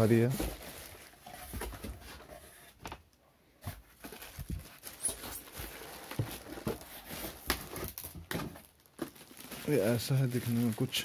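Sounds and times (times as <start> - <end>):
plastic bag crinkling: 4.4 - 11.0.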